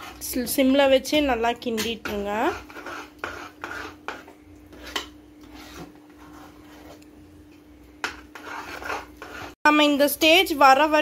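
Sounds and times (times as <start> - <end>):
metal spoon scraping thick paste: 0.0 - 7.2, 8.0 - 9.6.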